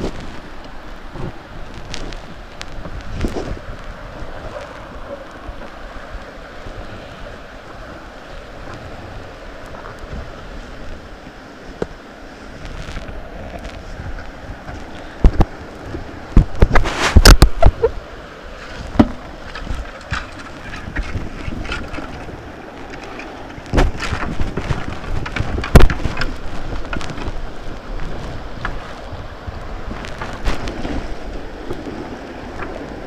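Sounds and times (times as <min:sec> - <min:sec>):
river water rushing and splashing: 0:00.0 - 0:33.0
wind buffeting microphone: 0:00.0 - 0:33.0
paddle knocks and splashes: 0:12.7 - 0:33.0.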